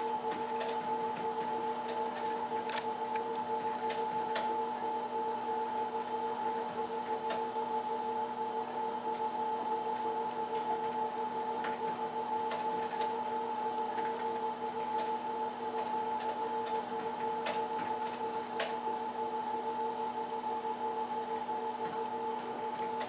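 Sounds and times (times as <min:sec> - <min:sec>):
steady machine hum: 0:00.0 - 0:23.0
small clicks and ticks: 0:01.9 - 0:04.5, 0:09.9 - 0:13.2, 0:14.0 - 0:15.1, 0:15.8 - 0:18.8.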